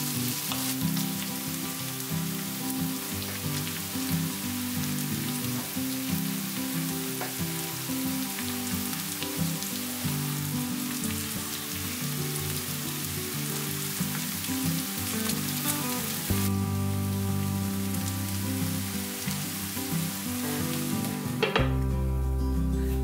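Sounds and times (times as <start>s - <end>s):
food sizzling in a frying pan: 0.0s - 23.0s
soft background music: 0.0s - 23.0s.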